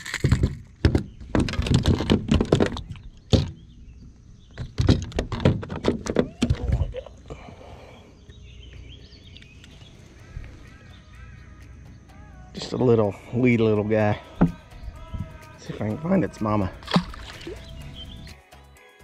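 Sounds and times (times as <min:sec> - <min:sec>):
knocks and clatters on boat deck: 0:00.2 - 0:03.6, 0:04.5 - 0:07.0.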